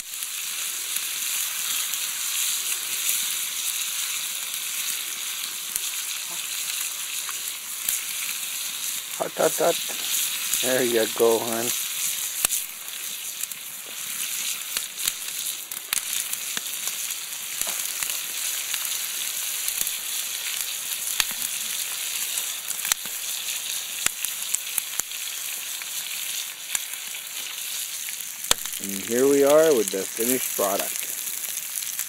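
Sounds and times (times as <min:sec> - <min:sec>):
fish sizzling in a pan: 0:00.0 - 0:32.0
sharp fat pops: 0:17.6 - 0:18.1, 0:28.4 - 0:28.8.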